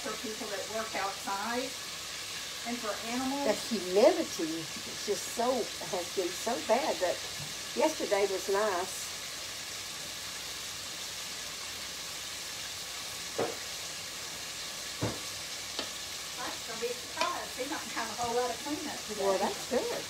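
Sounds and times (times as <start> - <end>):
food sizzling in oil: 0.0 - 20.0
light knocks: 15.0 - 15.9.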